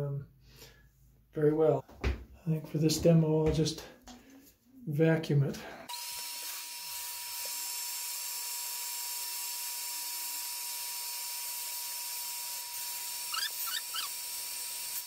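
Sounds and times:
short squeaks: 13.3s - 14.1s.

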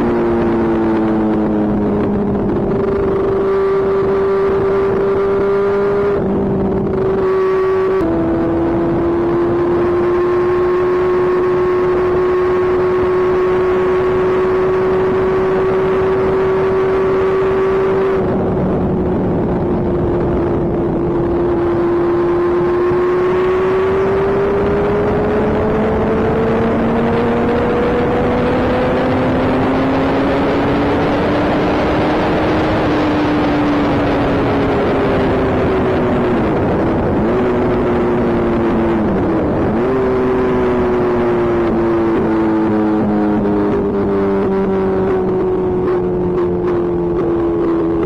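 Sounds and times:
motorcycle engine running: 0.0s - 48.0s
wind rushing over microphone: 0.0s - 48.0s.

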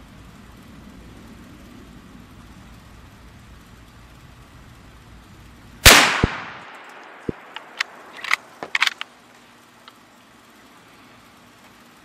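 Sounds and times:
rifle shot: 5.8s - 8.9s
rifle bolt clicks: 5.9s - 9.1s.

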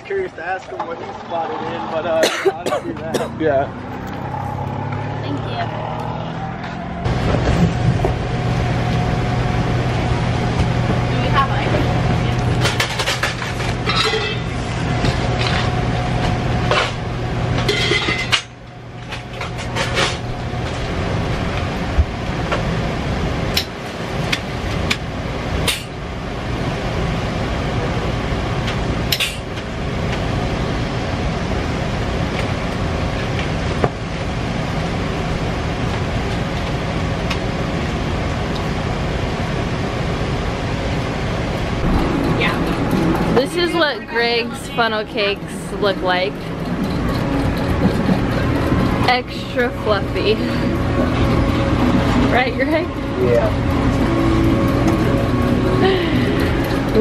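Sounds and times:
machinery noise: 0.0s - 57.0s
dishes clattering in metal sink: 17.6s - 18.5s.

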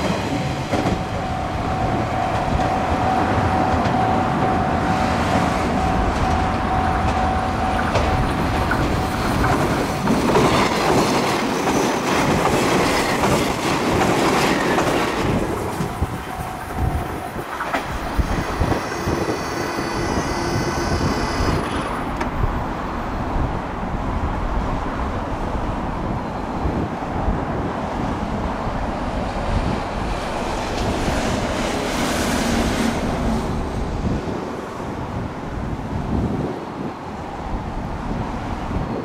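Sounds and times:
electric train whine: 0.0s - 23.2s
wind on microphone: 0.0s - 39.0s.

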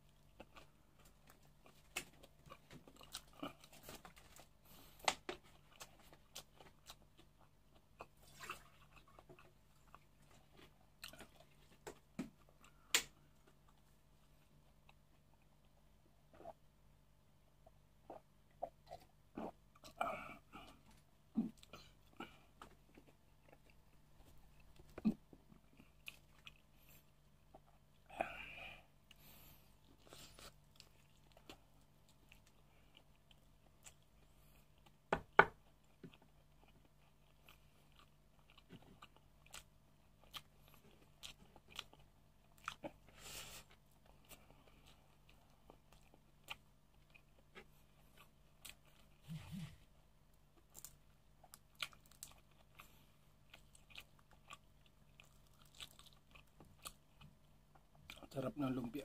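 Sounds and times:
person chewing food: 0.0s - 58.2s
food crunching: 50.4s - 58.2s.

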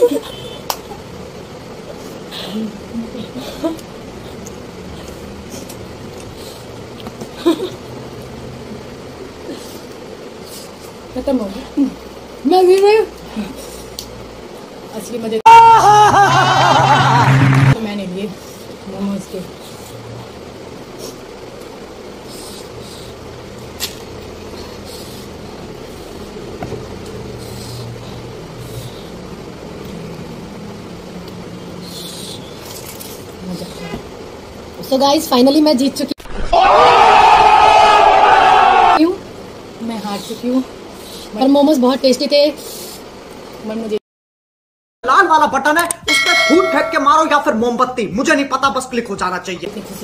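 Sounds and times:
person exclaiming or laughing: 15.5s - 17.4s.

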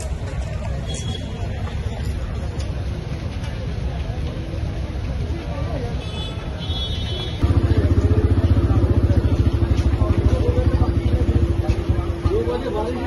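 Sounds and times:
faint voices: 0.0s - 13.0s
small engine chugging: 7.4s - 13.0s.

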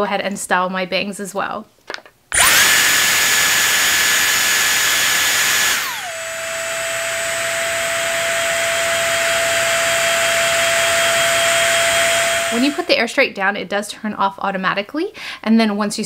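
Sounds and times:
hair tool fan motor whining: 2.3s - 13.0s.

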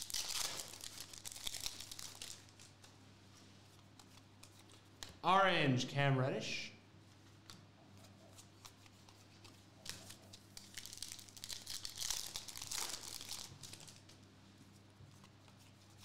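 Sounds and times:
foil wrapper crinkling: 0.0s - 2.9s, 9.8s - 14.2s.

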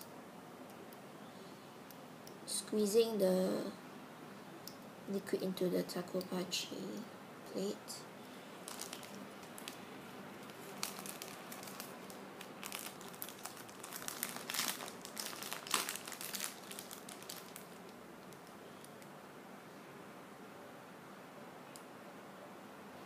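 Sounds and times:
plastic packaging crinkling: 8.6s - 19.0s.

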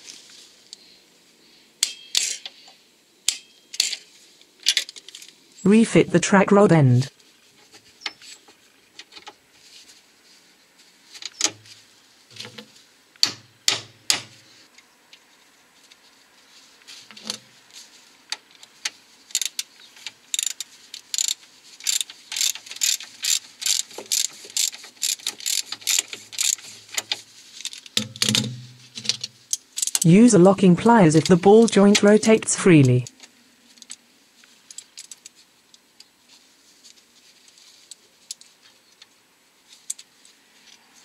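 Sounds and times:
socket ratchet clicking: 20.4s - 26.6s.

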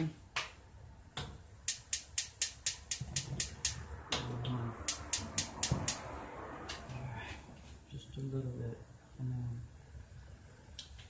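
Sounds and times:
gas stove igniter clicking: 1.6s - 3.8s, 4.8s - 6.0s.

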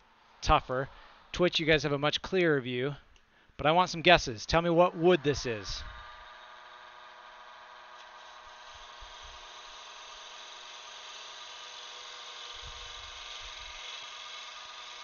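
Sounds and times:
turning tool cutting hiss: 4.8s - 15.0s
lathe motor hum: 4.9s - 15.0s.

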